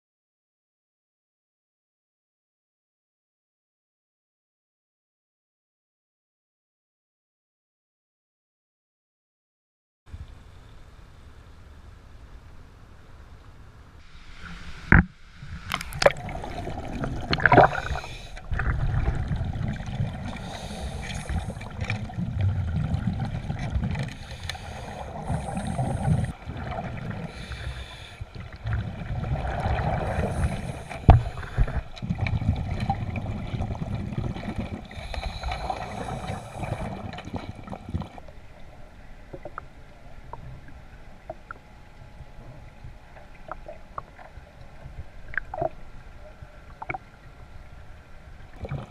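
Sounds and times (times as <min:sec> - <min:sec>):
muffled underwater sloshing: 0:13.5 - 0:48.9.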